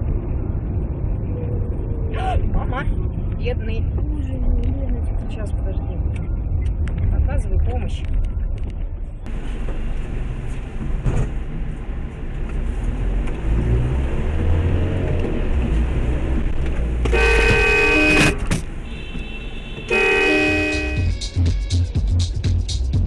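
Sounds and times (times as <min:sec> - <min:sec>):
vehicle interior engine rumble: 0:00.0 - 0:23.0
vehicle horn: 0:17.1 - 0:21.4.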